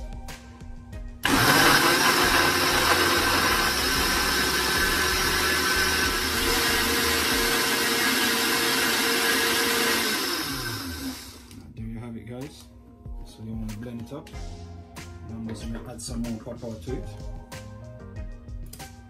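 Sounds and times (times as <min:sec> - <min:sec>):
blender motor running: 0:01.2 - 0:11.6.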